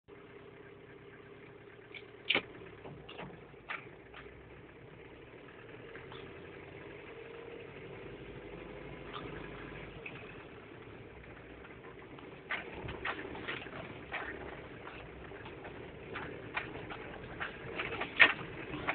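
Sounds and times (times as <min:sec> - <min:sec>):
diesel engine running: 0:00.1 - 0:18.9
knocks and rattles: 0:01.9 - 0:06.5, 0:11.0 - 0:18.9.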